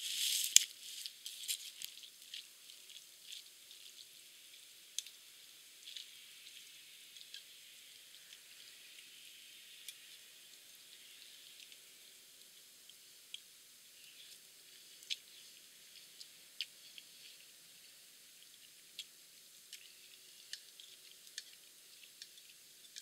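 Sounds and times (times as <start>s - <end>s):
rustling of dry leaves: 0.0s - 12.2s
faint steady hiss: 0.0s - 23.0s.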